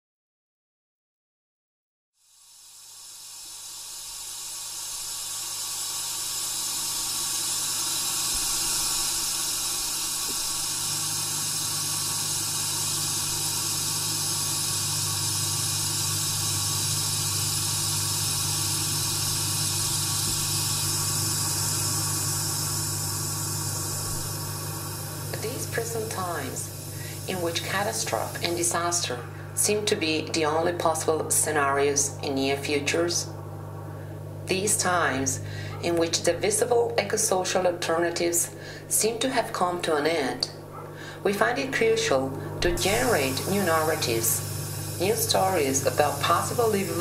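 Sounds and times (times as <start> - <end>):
steady hissing: 2.2 - 37.7, 39.5 - 47.0
low hum: 6.6 - 36.7.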